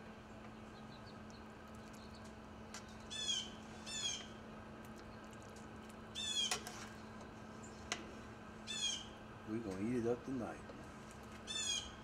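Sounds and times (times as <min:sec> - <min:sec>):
steady low hum: 0:00.0 - 0:12.0
bird squawking: 0:03.1 - 0:04.3, 0:06.2 - 0:06.6, 0:08.7 - 0:09.2, 0:11.5 - 0:12.0.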